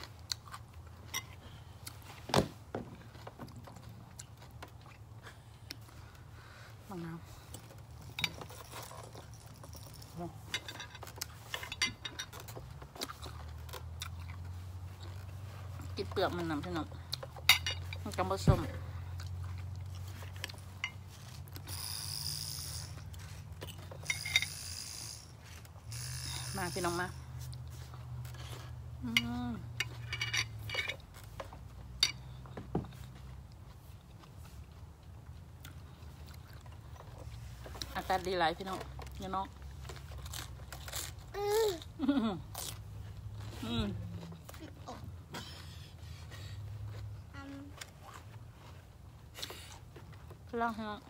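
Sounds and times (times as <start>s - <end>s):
wet mouth chewing crunches: 12.8s - 15.4s.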